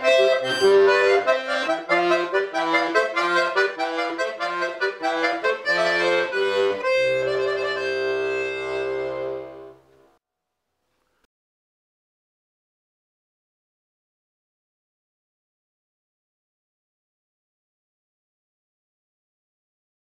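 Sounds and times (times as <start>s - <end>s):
button accordion playing: 0.0s - 9.8s.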